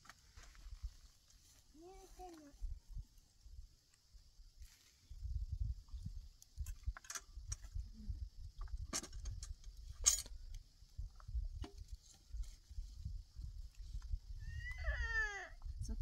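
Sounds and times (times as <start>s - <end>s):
wind rumble on microphone: 2.5s - 3.7s, 5.0s - 16.0s.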